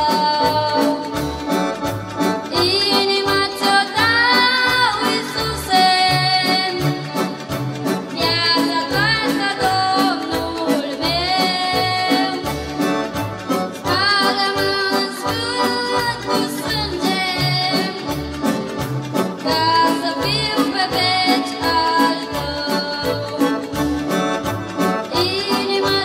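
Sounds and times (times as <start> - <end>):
boy singing into microphone: 0.0 - 1.2, 2.6 - 7.0, 13.9 - 18.1, 19.4 - 23.6
keyboard chords: 0.0 - 26.0.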